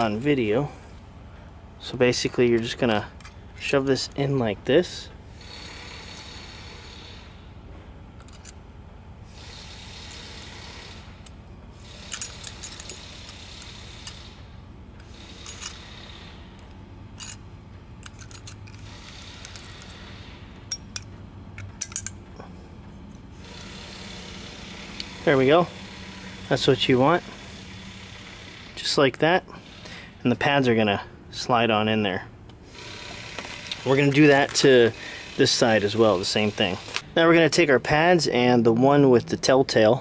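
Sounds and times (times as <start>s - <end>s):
small metallic clicks and scrapes: 5.4s - 7.2s, 8.2s - 8.6s, 9.4s - 14.4s, 15.0s - 17.4s, 18.0s - 22.2s.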